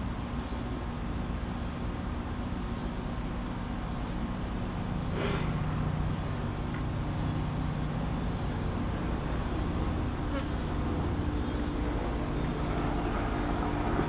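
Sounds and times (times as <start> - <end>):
helicopter flying over: 8.6 - 14.0.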